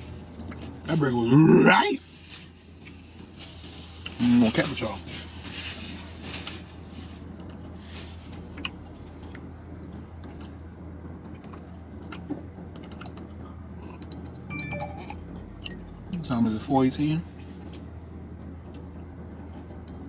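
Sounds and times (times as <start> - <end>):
low hum in car cabin: 0.0 - 20.0
paper napkin rustling: 3.4 - 8.5.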